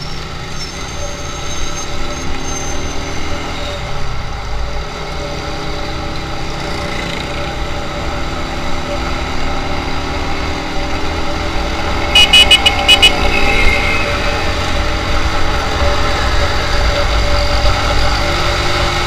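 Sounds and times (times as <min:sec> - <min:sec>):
road and wind noise: 0:00.0 - 0:19.0
motorcycle engine running: 0:05.8 - 0:19.0
vehicle horn short toots: 0:12.0 - 0:14.5.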